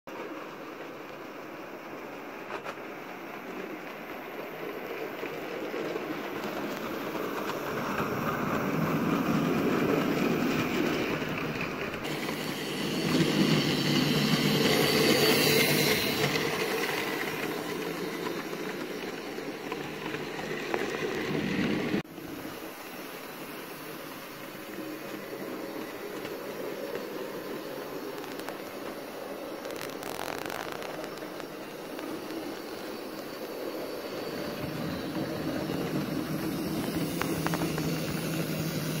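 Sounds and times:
model train motor and wheels whirring: 0:00.1 - 0:39.0.

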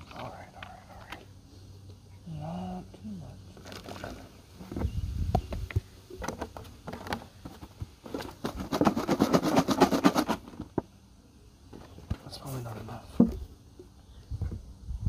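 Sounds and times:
plastic bottles clicking and knocking: 0:05.6 - 0:10.9.

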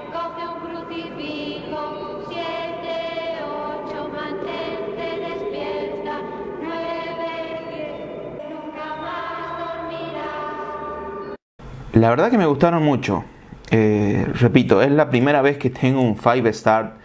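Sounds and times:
music of long held notes: 0:00.0 - 0:11.4.

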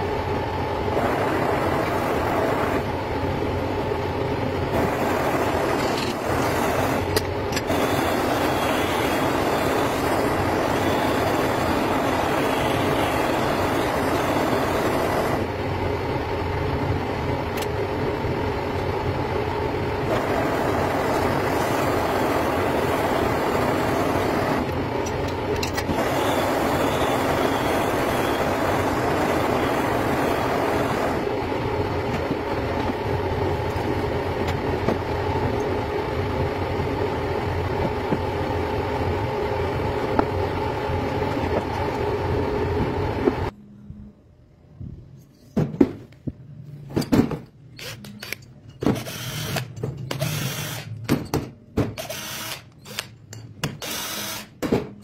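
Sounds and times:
metal lathe running: 0:04.7 - 0:15.6, 0:20.0 - 0:31.8.

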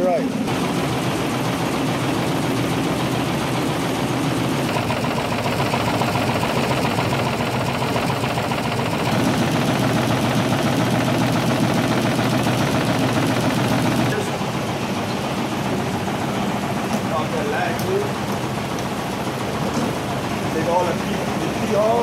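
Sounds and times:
pea pods churning in drum: 0:00.5 - 0:14.3
motor humming: 0:00.5 - 0:21.9.

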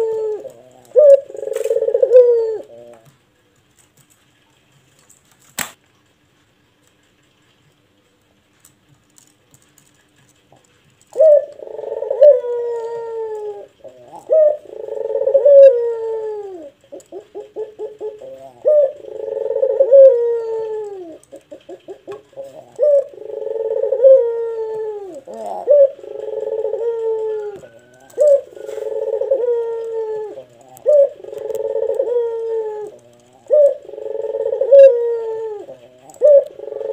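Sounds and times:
dove cooing: 0:00.0 - 0:03.2, 0:09.6 - 0:36.9
sharp click: 0:05.5 - 0:05.8.

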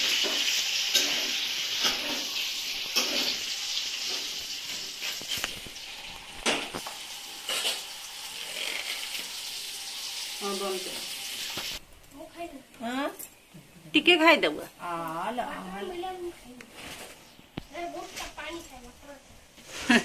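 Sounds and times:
steady hiss: 0:00.0 - 0:12.5.

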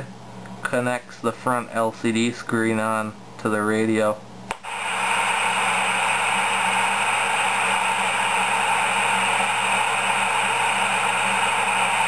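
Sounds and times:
radio static hiss: 0:04.5 - 0:12.0.

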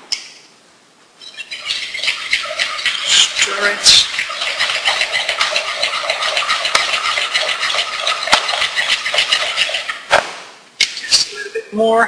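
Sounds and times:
whisk scraping batter in bowl: 0:01.2 - 0:10.1
whisk tapping bowl: 0:01.2 - 0:10.1.

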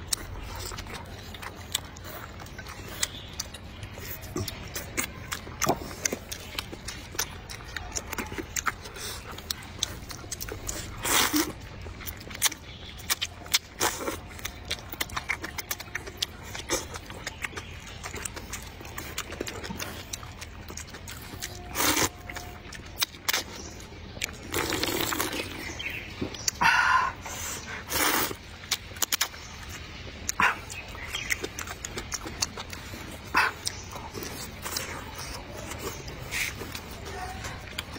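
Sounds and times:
wet chewing with lip smacks: 0:00.0 - 0:37.9
slurping noodles: 0:24.4 - 0:25.9, 0:26.9 - 0:28.4.

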